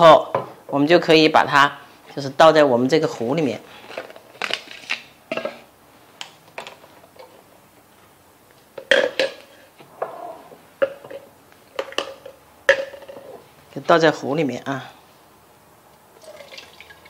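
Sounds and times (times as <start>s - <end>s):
containers clinking and knocking: 8.8s - 9.5s, 10.8s - 13.3s.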